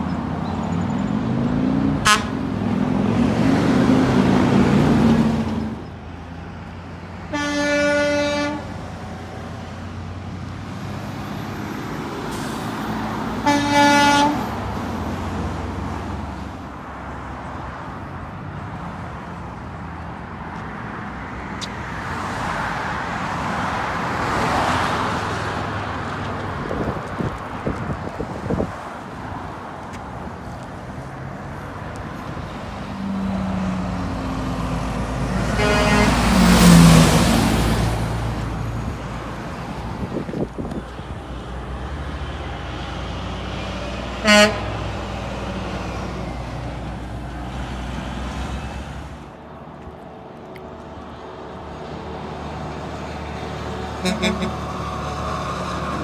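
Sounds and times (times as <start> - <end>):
road noise: 0.0 - 56.0
truck diesel engine passing: 0.0 - 56.0
vehicle passing by: 0.8 - 13.8, 20.7 - 56.0
vehicle horn toots: 2.0 - 2.4, 7.3 - 8.7, 13.4 - 14.4, 35.5 - 36.3, 44.2 - 44.7, 54.0 - 54.6.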